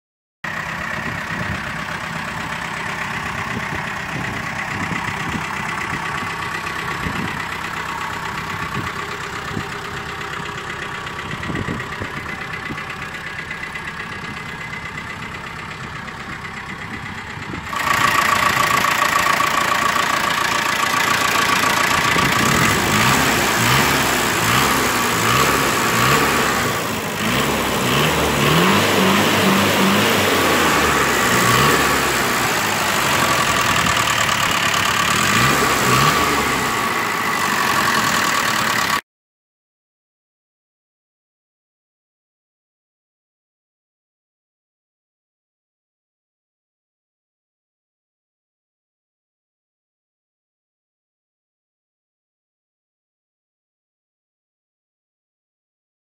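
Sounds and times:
diesel engine idling and revving: 0.4s - 39.0s.

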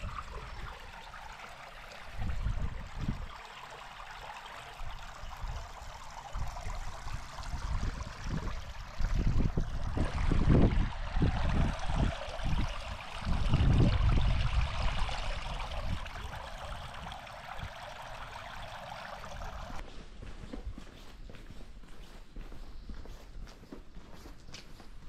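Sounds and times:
water rushing in channel: 0.0s - 19.8s
low rumbling gusts: 6.5s - 18.3s.

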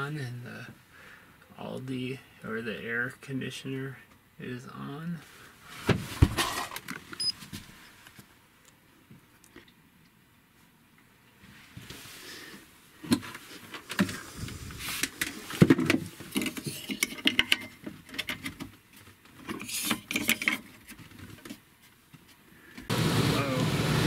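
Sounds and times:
hand handling battery cables: 13.0s - 22.9s.

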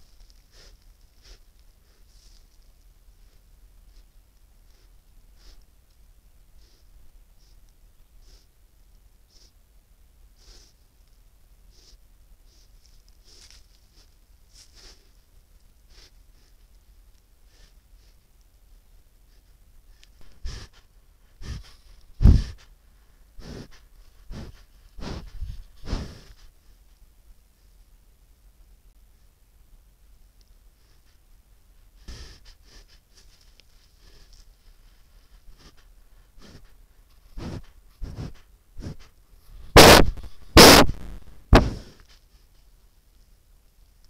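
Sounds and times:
soft brushing against camera: 0.0s - 5.6s, 11.8s - 15.4s
moose calf sniffing: 0.0s - 5.9s, 6.5s - 8.6s, 9.3s - 9.6s, 10.3s - 18.4s, 19.1s - 26.9s, 30.7s - 31.3s, 31.9s - 42.8s
loud scrapes against camera: 37.4s - 42.2s.

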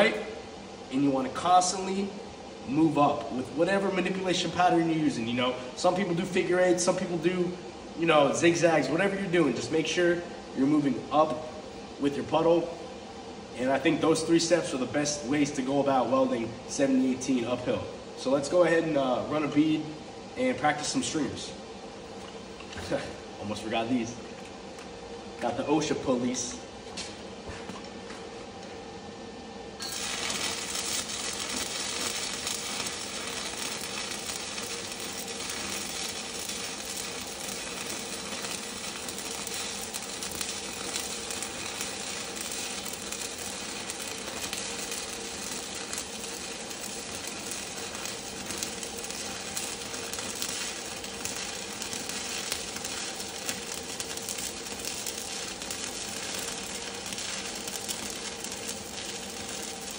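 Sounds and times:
welding arc crackling: 0.0s - 10.0s, 29.8s - 59.9s.

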